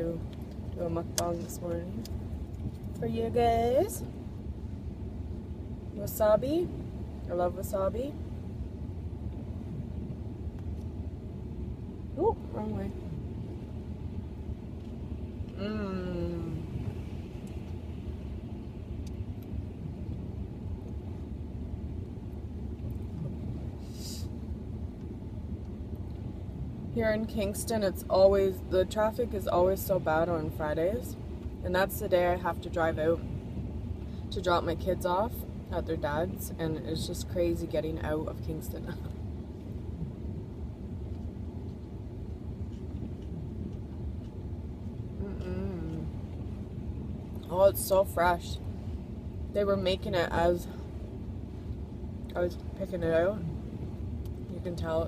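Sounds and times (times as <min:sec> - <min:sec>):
low rumble inside a car: 0:00.0 - 0:55.0
person humming while chewing: 0:45.2 - 0:46.1.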